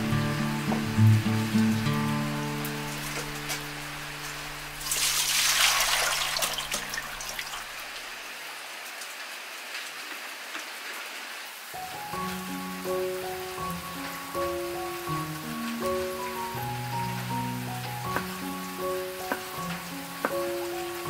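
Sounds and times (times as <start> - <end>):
background music: 0.0 - 5.1, 11.8 - 21.0
rain patter: 0.0 - 21.0
liquid splashing onto vegetables: 4.8 - 7.8.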